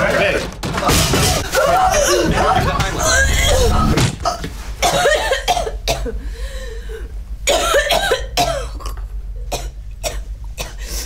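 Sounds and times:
woman coughing and choking: 4.3 - 6.2, 7.5 - 10.9.

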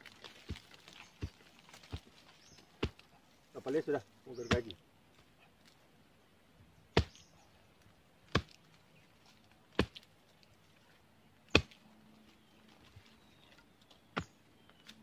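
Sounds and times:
machete chopping roots: 2.7 - 3.1, 4.4 - 4.8, 6.9 - 7.3, 8.3 - 8.7, 9.7 - 10.1, 11.5 - 11.8.

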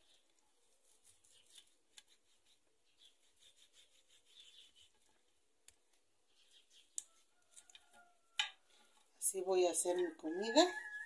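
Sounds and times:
knife slicing meat: 0.8 - 4.9.

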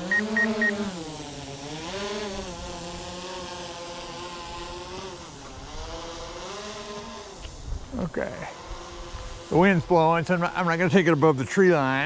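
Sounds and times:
drone propellers whining: 0.0 - 12.0
rapid beeping: 0.1 - 0.8.

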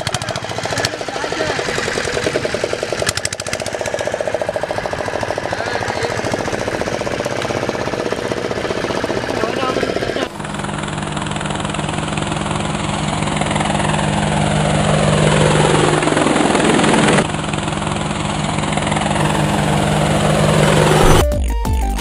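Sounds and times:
drone propellers whirring: 0.0 - 21.4
electronic music: 19.2 - 22.0.

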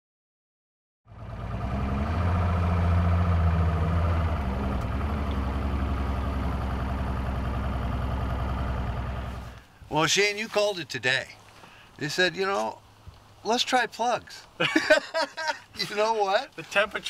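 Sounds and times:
boat motor droning: 1.1 - 9.6.

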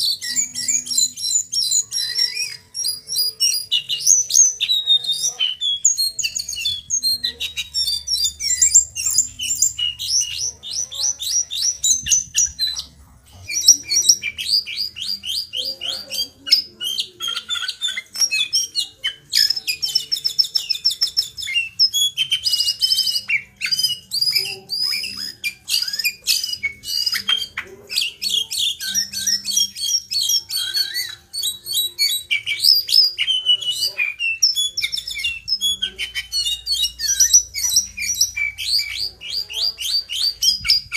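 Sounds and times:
bird singing trills and whistles: 0.0 - 40.9.

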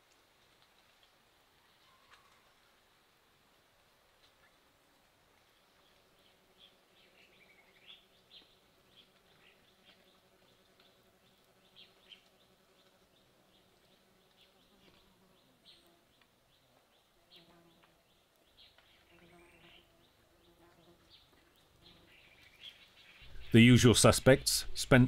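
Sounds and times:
insect buzzing: 5.9 - 16.2, 17.0 - 18.0, 18.6 - 23.5.

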